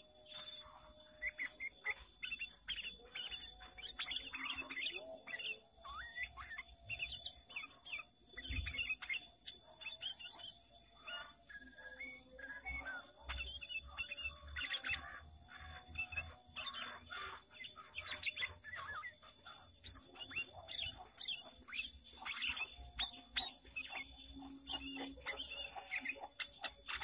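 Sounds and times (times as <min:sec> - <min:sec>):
bird singing chirps and whistles: 0:00.0 - 0:27.0.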